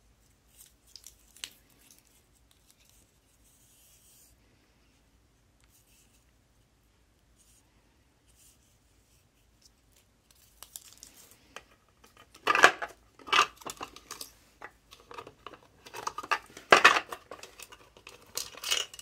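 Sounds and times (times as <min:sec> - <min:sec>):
small objects clattering in plastic case: 0:12.0 - 0:19.0.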